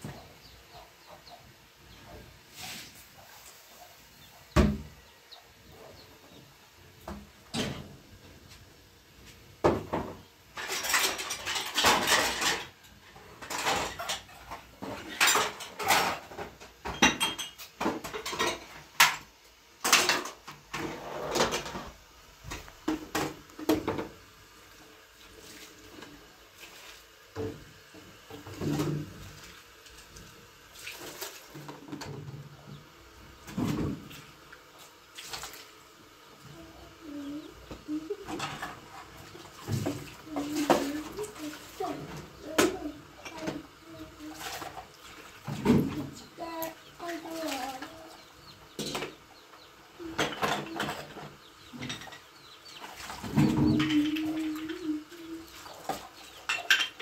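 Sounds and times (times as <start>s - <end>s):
pots and dishes clattering: 9.6s - 24.3s, 27.3s - 29.4s, 37.6s - 46.5s, 48.4s - 57.0s.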